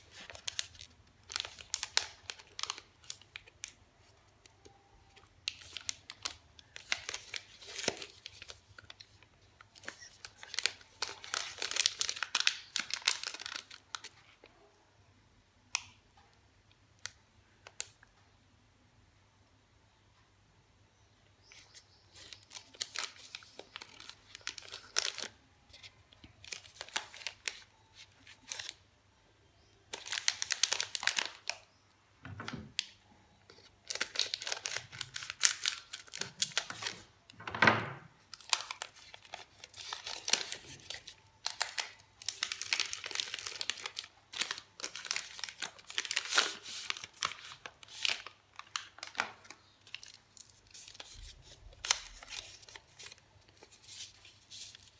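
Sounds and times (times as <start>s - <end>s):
plastic wrappers crinkling and tearing: 0.0s - 3.8s, 4.6s - 14.4s, 22.2s - 28.8s, 29.9s - 31.7s, 32.8s - 37.1s, 38.3s - 54.9s.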